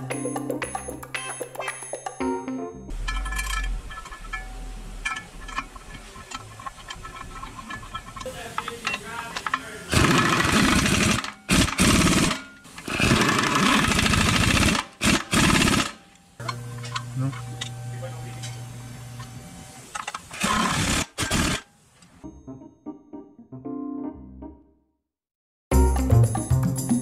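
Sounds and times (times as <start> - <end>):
power wrench hammering: 2.9 - 18.6, 19.9 - 21.6.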